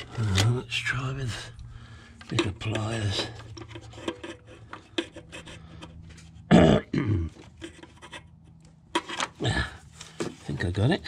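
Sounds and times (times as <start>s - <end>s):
person grunting: 6.5s - 7.3s, 9.4s - 9.8s.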